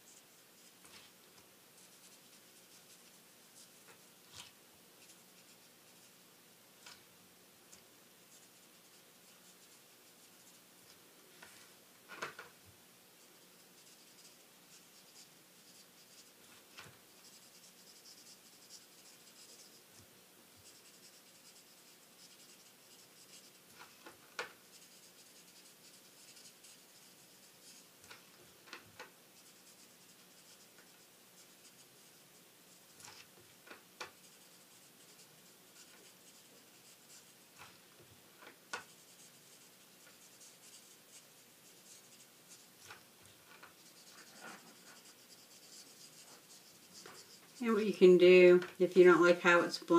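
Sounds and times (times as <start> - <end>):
marker scratching on card: 13.3 - 20.0, 20.6 - 28.3, 29.4 - 33.3, 34.0 - 37.8, 38.7 - 43.0, 43.6 - 47.8.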